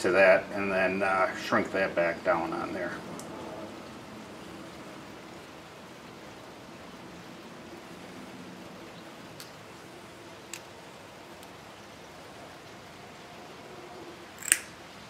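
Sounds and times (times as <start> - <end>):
background hiss: 0.0 - 15.0
faint clicks: 9.4 - 9.6, 10.5 - 10.7.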